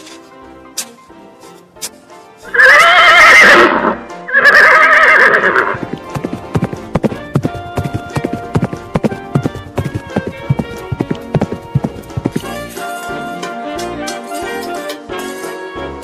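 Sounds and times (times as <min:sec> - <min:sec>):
background music: 0:00.0 - 0:16.0
horse whinnying: 0:02.4 - 0:06.0
hooves clip-clopping: 0:04.4 - 0:13.4.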